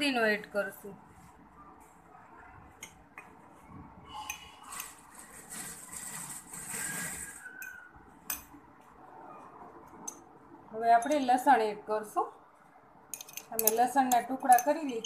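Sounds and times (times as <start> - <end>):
spoon clinking on steel rim: 13.1 - 15.0.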